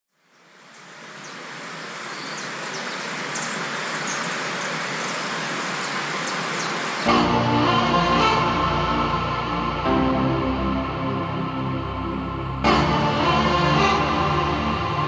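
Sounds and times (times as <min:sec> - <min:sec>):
running water rushing: 0:00.2 - 0:08.3.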